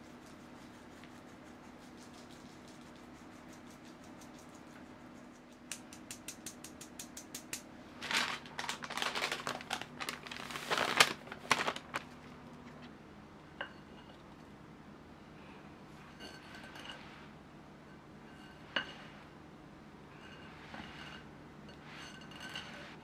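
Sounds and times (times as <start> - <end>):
parchment paper rustling: 8.0 - 12.8.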